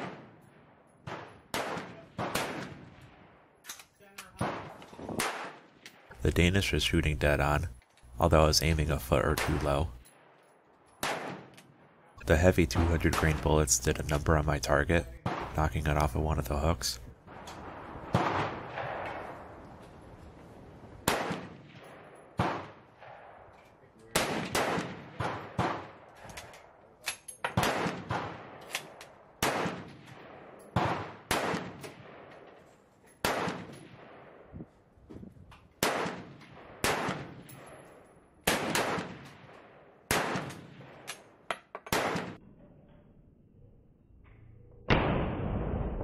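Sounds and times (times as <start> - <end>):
rifle shots: 0.0 - 3.6, 4.2 - 6.1, 11.0 - 12.0, 15.2 - 15.8, 17.3 - 19.7, 20.9 - 26.8, 27.4 - 32.6, 33.2 - 34.6, 35.8 - 42.4, 44.9 - 46.0.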